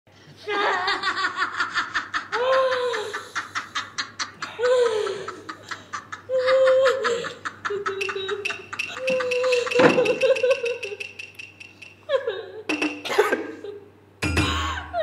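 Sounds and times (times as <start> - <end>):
woman gasping and sobbing laughter: 1.7 - 11.0
woman wailing: 2.3 - 3.2, 6.3 - 10.4.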